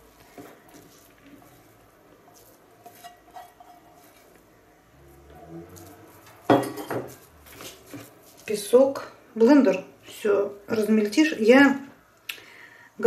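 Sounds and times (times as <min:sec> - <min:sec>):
spoon scraping and tapping bowl: 0:02.3 - 0:04.4, 0:05.8 - 0:08.4.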